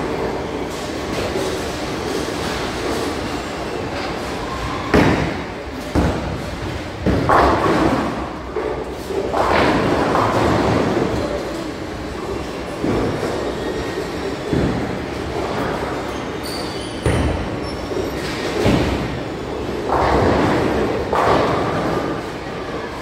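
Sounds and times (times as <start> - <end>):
bowling balls thudding and rolling: 0.0 - 23.0.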